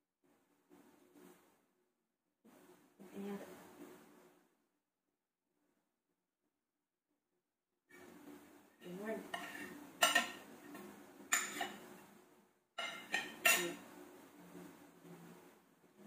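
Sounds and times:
knife clinking against a plate: 9.3s - 10.4s, 11.3s - 11.8s, 12.8s - 13.8s.

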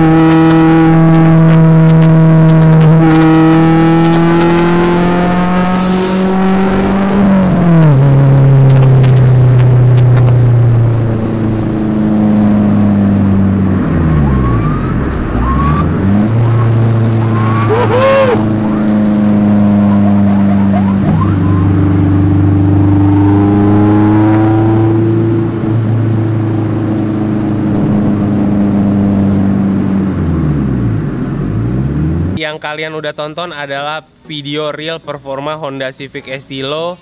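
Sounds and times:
car engine accelerating: 0.0s - 32.4s.

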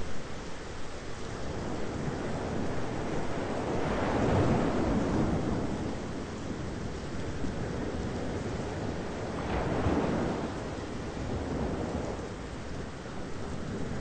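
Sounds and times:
rain: 0.0s - 14.0s
wind: 0.0s - 14.0s
thunder rumble: 7.5s - 12.5s.

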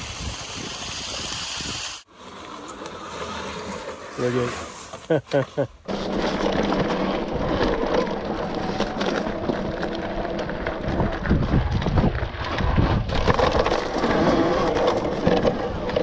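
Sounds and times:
motorbike riding noise: 0.0s - 16.0s
wind buffeting microphone: 10.6s - 13.8s.

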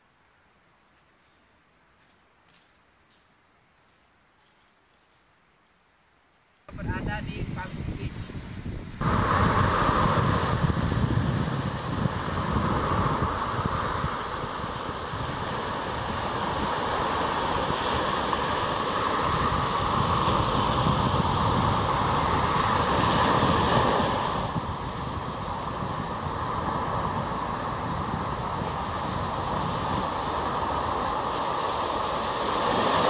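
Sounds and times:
waves breaking on beach: 9.0s - 33.0s.

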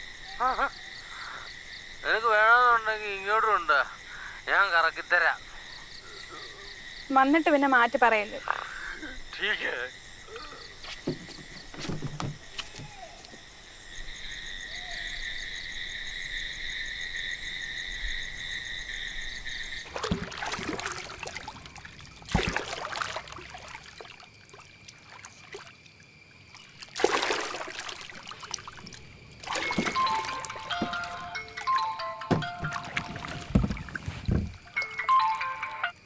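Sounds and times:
paddle splashing in water: 19.9s - 25.7s, 26.4s - 35.4s
high-pitched night chorus: 28.8s - 36.0s.

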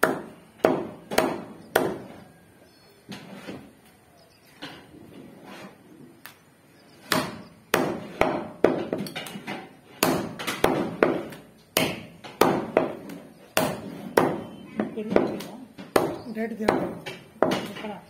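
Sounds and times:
meat cleaver chopping on wood: 10.0s - 17.8s.

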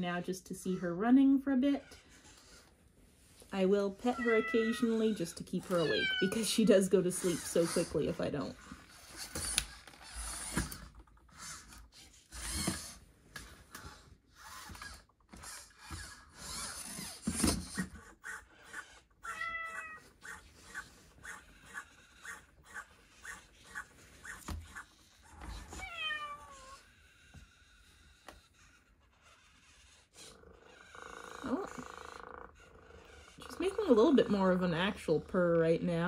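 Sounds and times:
robotic cat meowing: 4.0s - 6.5s, 19.2s - 20.4s, 25.7s - 26.8s.

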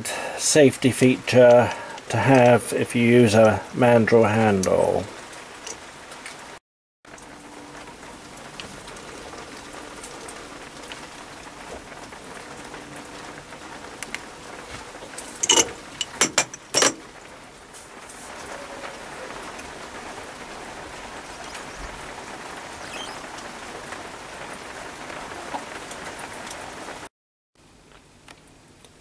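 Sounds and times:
low steady hiss: 0.0s - 6.4s, 27.6s - 29.0s.

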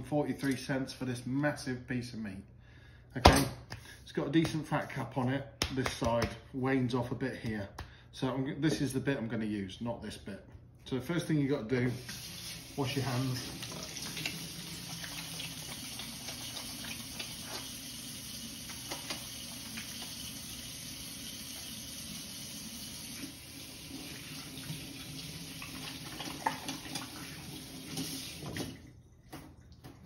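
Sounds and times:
hands washing with splashes: 11.9s - 21.8s, 23.1s - 30.0s.

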